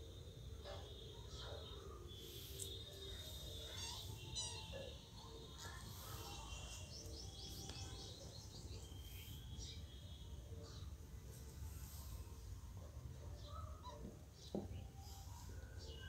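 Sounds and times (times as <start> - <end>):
birds chirping: 1.3 - 11.0.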